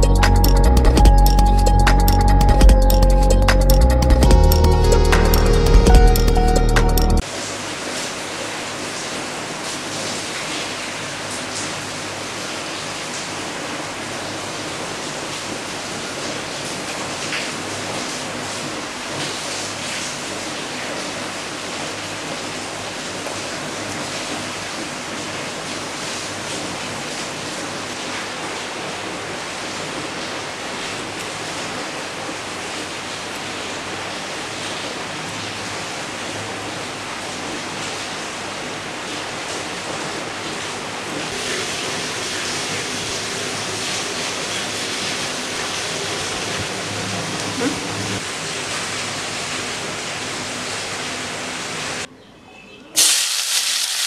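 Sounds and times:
loud steady hiss: 53.0s - 54.0s.

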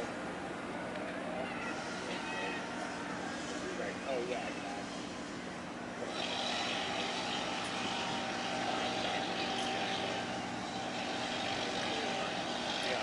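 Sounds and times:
boat diesel engines droning: 0.0s - 13.0s.

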